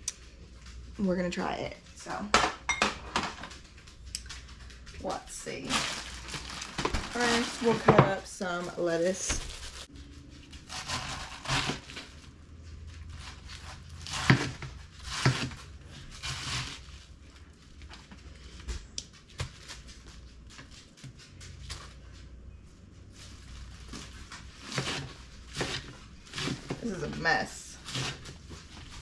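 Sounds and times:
lettuce being cut crunching: 0:10.6 - 0:12.1.

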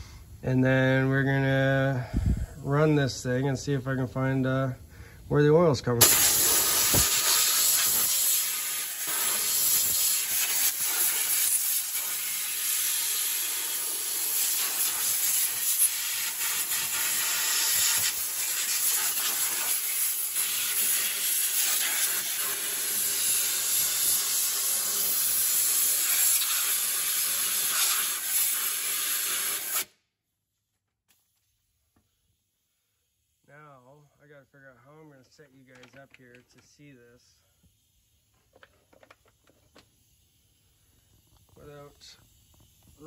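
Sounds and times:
compressed air blow gun hissing: 0:06.0 - 0:29.9, 0:39.2 - 0:43.0.

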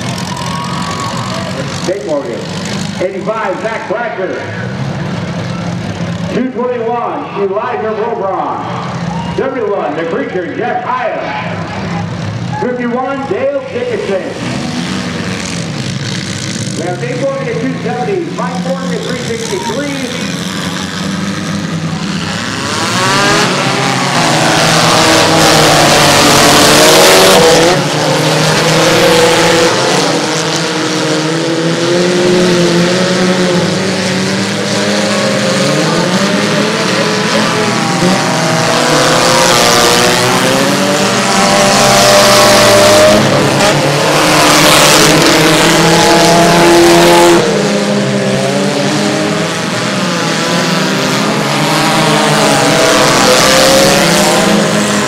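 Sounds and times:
cars on dirt noise: 0:00.0 - 0:55.0
small car engines revving: 0:00.0 - 0:55.0.

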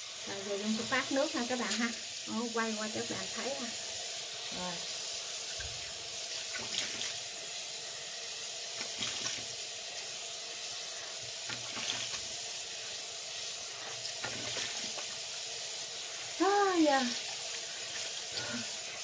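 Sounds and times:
tap water running into sink: 0:00.0 - 0:19.0
soft water splashes: 0:05.5 - 0:07.2.

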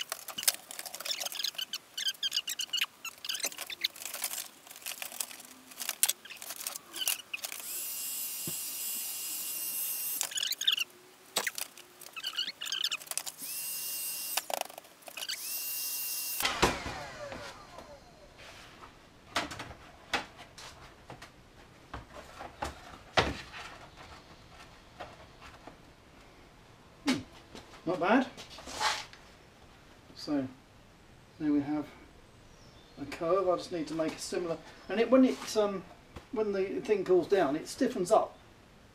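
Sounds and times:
heat gun hissing with fan whine: 0:07.6 - 0:10.2.

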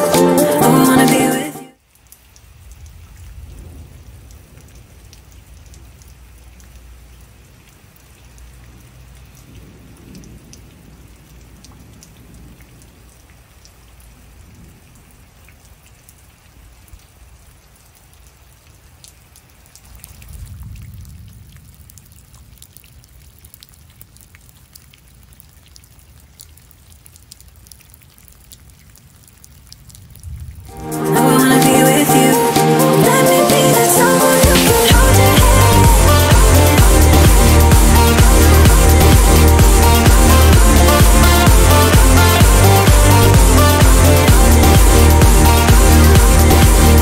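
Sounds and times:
steady rain: 0:00.0 - 0:47.0
raindrops ticking close by: 0:01.8 - 0:47.0
low rumble: 0:34.8 - 0:47.0.

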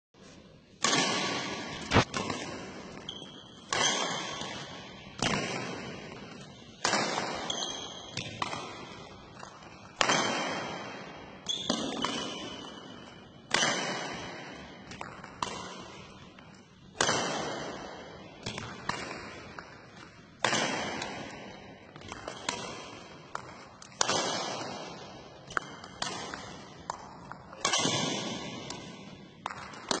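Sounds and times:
sharp echoing impacts: 0:00.8 - 0:30.0.

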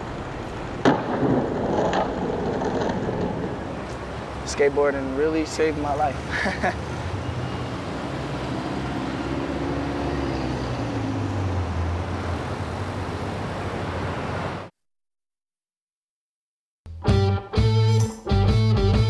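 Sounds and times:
street traffic rumble: 0:00.0 - 0:14.7.

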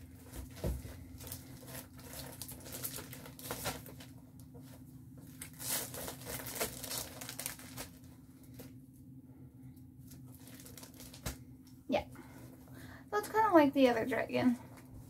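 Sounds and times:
paper and packaging rustling: 0:00.2 - 0:08.7, 0:10.1 - 0:11.4.

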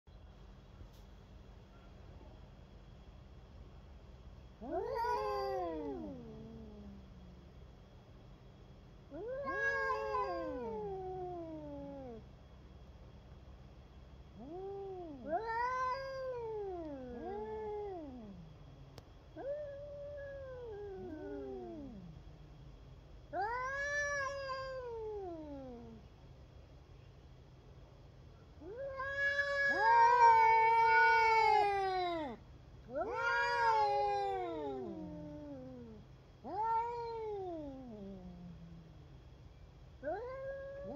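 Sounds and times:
cat yowling: 0:04.6 - 0:07.0, 0:09.1 - 0:12.2, 0:14.4 - 0:18.4, 0:19.4 - 0:22.1, 0:23.4 - 0:26.0, 0:28.6 - 0:38.6, 0:40.0 - 0:40.9.

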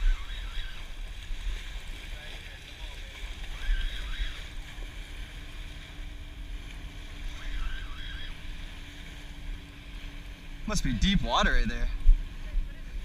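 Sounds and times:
small waves washing onto sand: 0:00.0 - 0:13.0
wind rumbling on microphone: 0:00.0 - 0:13.0
faint steady hum: 0:03.0 - 0:13.0.

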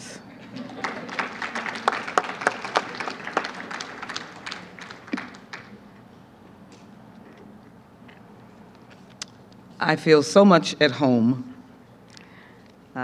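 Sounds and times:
audience applauding: 0:00.5 - 0:05.8.

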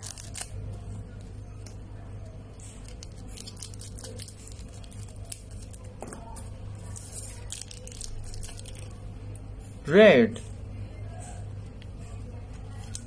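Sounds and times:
plastic wrapper crinkling: 0:00.0 - 0:00.8, 0:02.6 - 0:06.0, 0:06.8 - 0:09.0, 0:12.7 - 0:13.0
low steady hum: 0:00.0 - 0:13.0.

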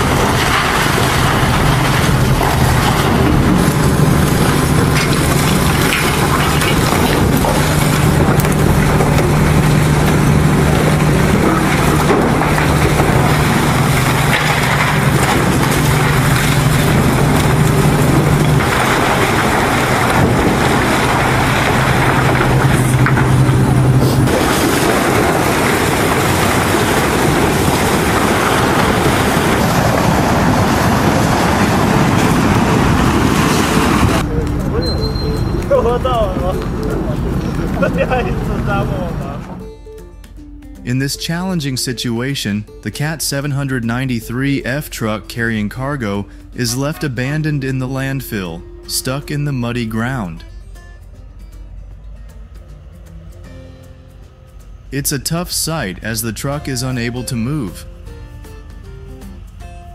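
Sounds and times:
concrete crunching and breaking: 0:00.0 - 0:38.9
excavator diesel engine humming: 0:00.0 - 0:59.9.

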